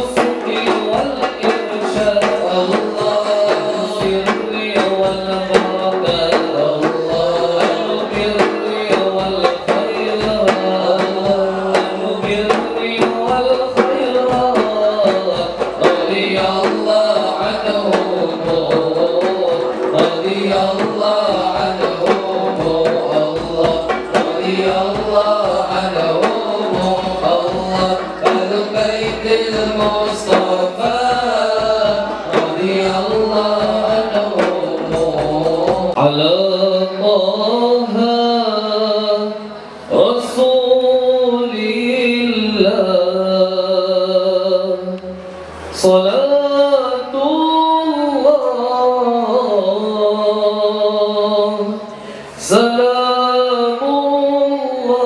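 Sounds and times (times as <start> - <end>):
hand-struck frame drums: 0.0 - 36.4
men chanting into microphones: 0.0 - 55.0.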